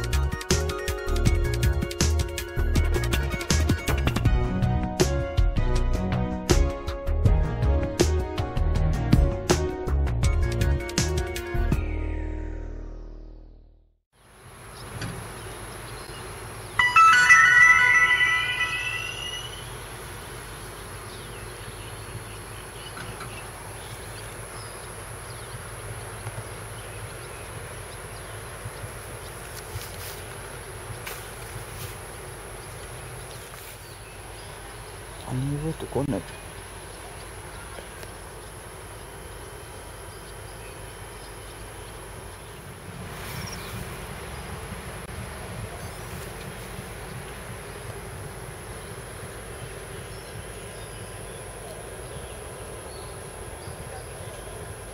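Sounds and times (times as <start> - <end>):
faint chirps: 16.8 - 20.3
insects trilling: 18.2 - 45.0, 45.8 - 54.9
low wind rumble: 41.2 - 54.9.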